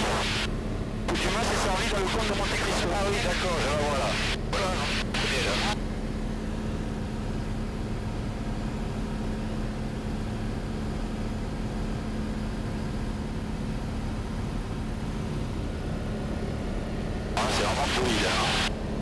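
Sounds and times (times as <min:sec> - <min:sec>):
propeller plane engine droning: 0:00.0 - 0:19.0
low hum: 0:14.0 - 0:19.0.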